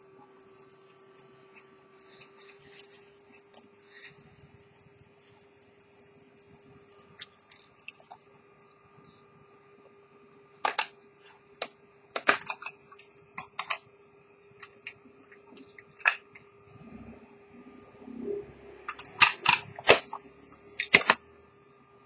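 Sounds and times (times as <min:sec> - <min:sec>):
pocket watch ticking: 0:02.6 - 0:07.8.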